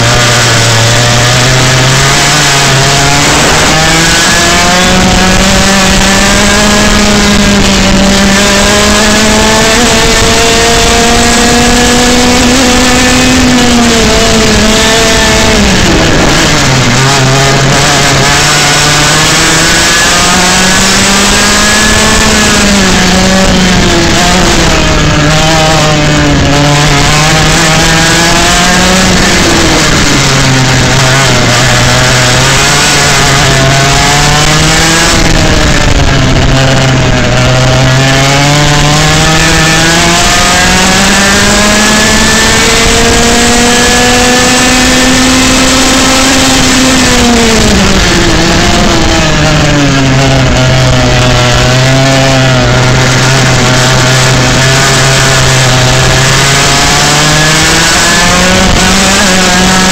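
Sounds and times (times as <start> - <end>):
kart engine running hard: 0.0 - 59.9.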